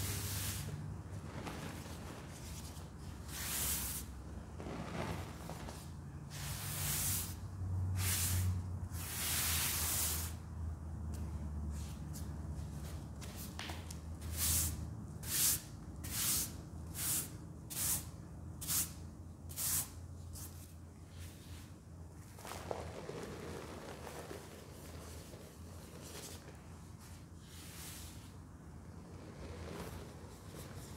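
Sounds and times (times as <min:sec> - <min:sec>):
sponge swiping powder: 0:00.0 - 0:07.4, 0:22.3 - 0:28.4
hands swishing through powder: 0:22.3 - 0:28.4.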